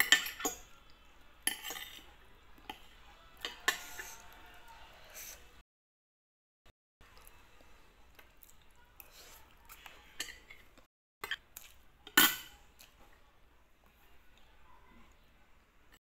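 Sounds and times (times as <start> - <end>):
cutlery scraping on a plate: 0.0 - 0.7, 1.4 - 4.2, 10.2 - 11.4, 12.1 - 12.6.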